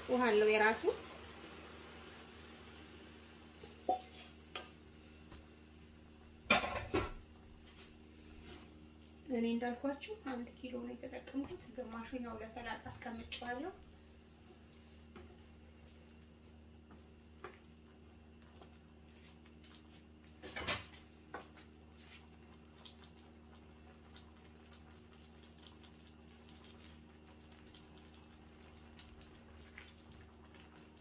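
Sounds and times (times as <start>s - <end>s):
low steady hum: 0.0s - 31.0s
spoon stirring beans in a pan: 3.6s - 5.4s.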